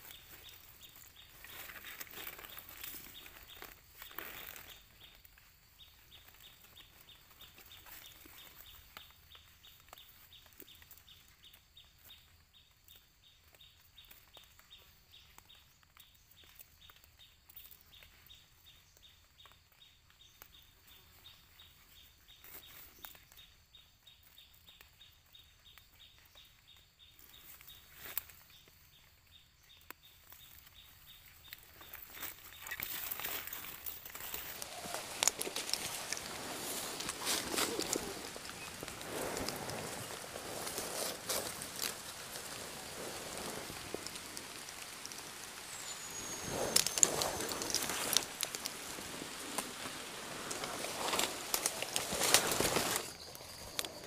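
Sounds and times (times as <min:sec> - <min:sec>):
high hiss: 0:33.3 - 0:54.0.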